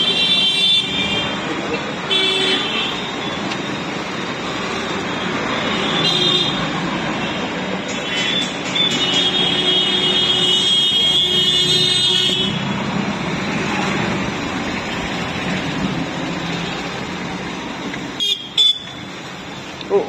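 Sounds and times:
road traffic: 0.0 - 20.0.

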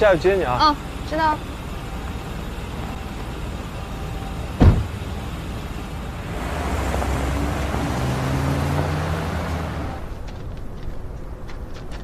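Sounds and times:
car pulling away: 0.0 - 12.0
street traffic: 0.0 - 12.0
car door slamming: 4.5 - 5.0.

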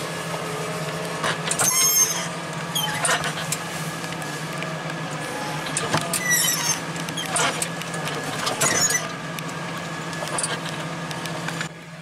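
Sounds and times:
tractor engine running: 0.0 - 12.0
cab squeaks and creaks: 1.2 - 3.6, 5.5 - 9.2, 10.2 - 10.9.

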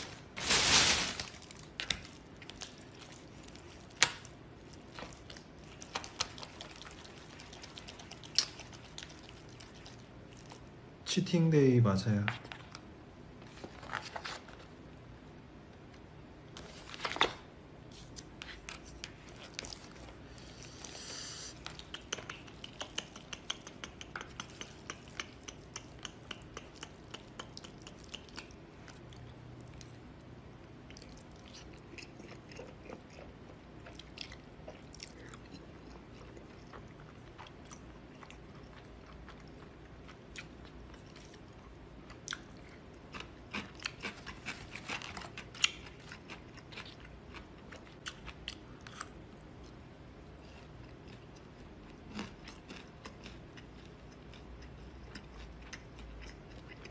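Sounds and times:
chewing and mouth sounds: 1.5 - 10.9, 17.9 - 56.9.

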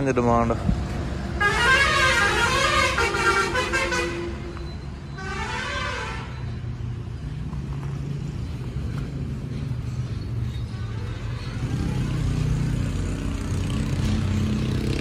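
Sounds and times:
vehicle horn blasts: 1.4 - 4.5, 5.2 - 6.4.

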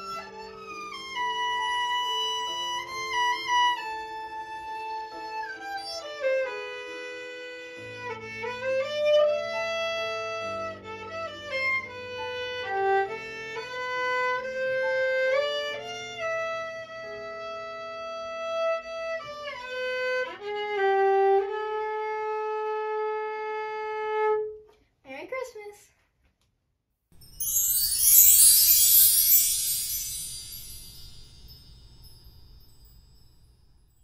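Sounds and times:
solo violin slow melody: 0.0 - 24.5.

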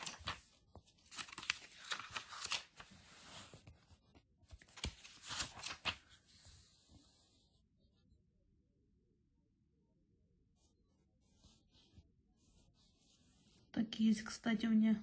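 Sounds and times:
glossy pages rustling: 0.0 - 7.1.

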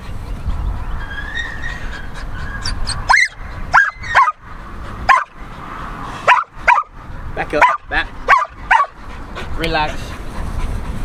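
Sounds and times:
dog yelping barks: 1.5 - 4.4, 5.0 - 5.4, 6.2 - 6.9, 7.6 - 9.0.

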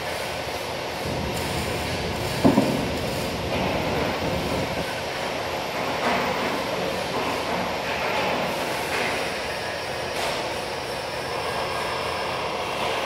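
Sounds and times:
metalworking machinery noise: 0.0 - 13.0.

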